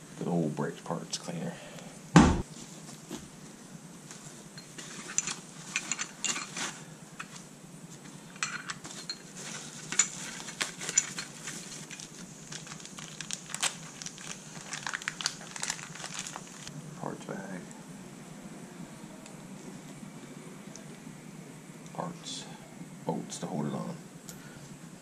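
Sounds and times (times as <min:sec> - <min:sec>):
knock: 0:02.2 - 0:02.4
metal parts and tools clinking: 0:04.6 - 0:07.4, 0:08.3 - 0:12.0
packing paper crinkling: 0:08.9 - 0:16.7.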